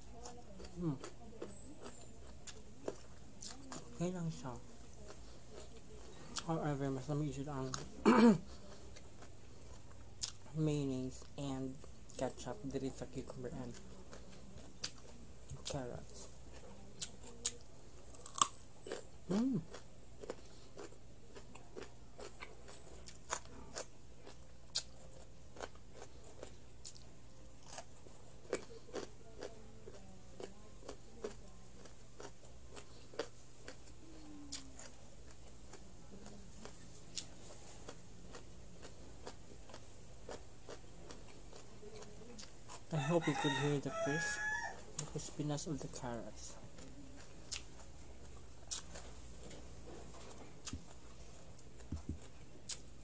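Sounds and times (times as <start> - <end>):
low steady hum: 0.0 - 53.0
carrot crunching: 12.1 - 33.9, 34.5 - 53.0.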